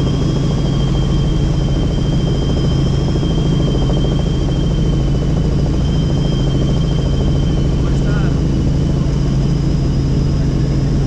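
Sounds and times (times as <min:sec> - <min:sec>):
helicopter rotor and engine: 0:00.0 - 0:11.0.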